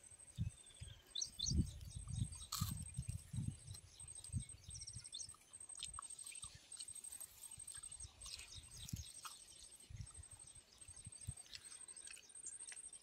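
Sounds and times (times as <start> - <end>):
small birds chirping: 0.0 - 13.0
wind buffeting microphone: 0.3 - 5.3.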